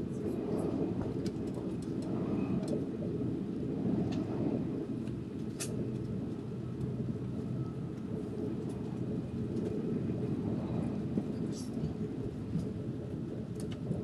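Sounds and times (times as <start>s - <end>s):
train rumbling: 0.0s - 14.0s.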